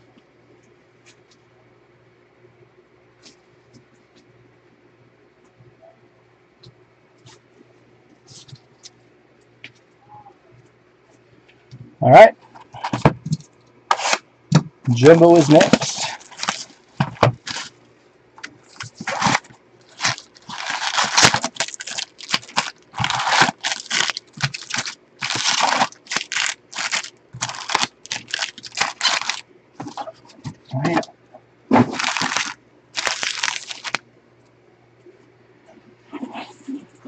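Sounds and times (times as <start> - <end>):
cardboard tearing: 13.9 - 14.2, 15.0 - 17.7, 18.7 - 30.0, 31.8 - 34.0
foil card packs rustling: 13.9 - 14.2, 14.9 - 17.7, 18.4 - 30.3, 31.8 - 34.0
plastic shrink-wrap crackling: 13.9 - 14.2, 15.0 - 17.7, 18.6 - 30.0, 31.9 - 34.0.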